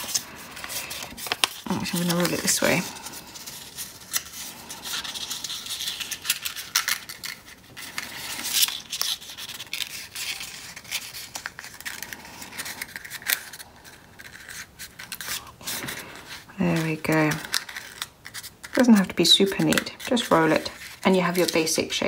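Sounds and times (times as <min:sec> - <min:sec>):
paper rustling and crinkling: 0:00.0 - 0:22.0.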